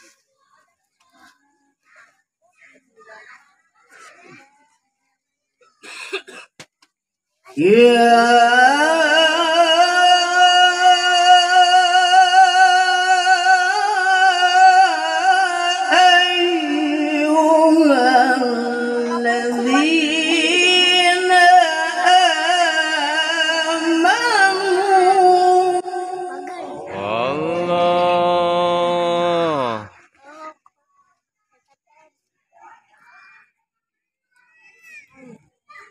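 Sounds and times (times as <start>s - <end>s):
person reciting melodically: 7.5s - 29.9s.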